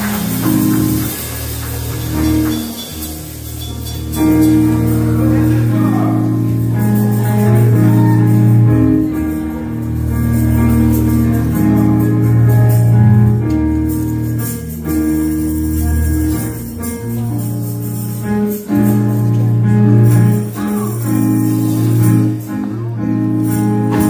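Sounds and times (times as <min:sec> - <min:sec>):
organ chords: 0:00.0 - 0:24.0
tambourine: 0:00.0 - 0:24.0
deep bass notes: 0:03.1 - 0:18.2.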